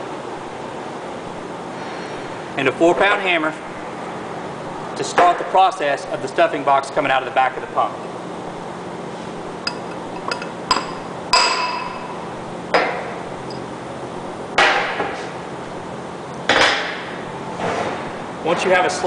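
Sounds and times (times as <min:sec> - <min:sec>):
hammer striking metal punch: 0:09.7 - 0:12.2.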